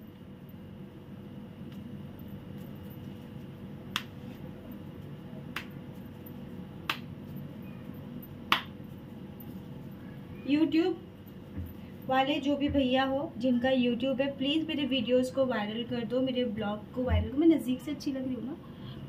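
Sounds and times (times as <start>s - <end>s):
low background hum: 0.0s - 19.0s
hands slapping dough: 3.8s - 4.4s, 5.5s - 5.9s, 6.8s - 7.2s, 8.5s - 8.8s.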